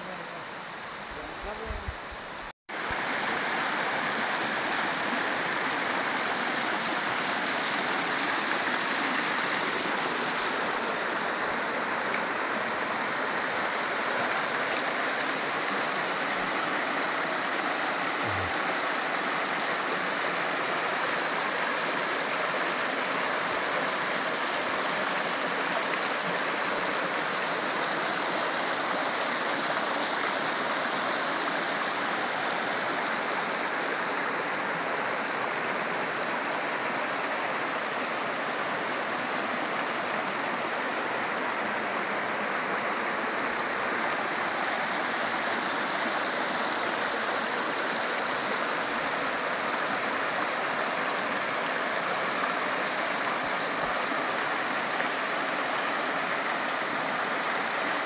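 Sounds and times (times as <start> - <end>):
stream running over rocks: 0.0 - 58.0.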